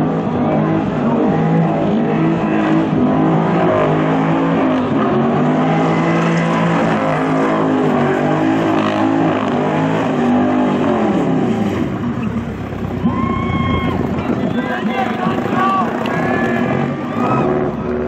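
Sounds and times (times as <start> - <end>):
car engine revving high: 0.0 - 14.0.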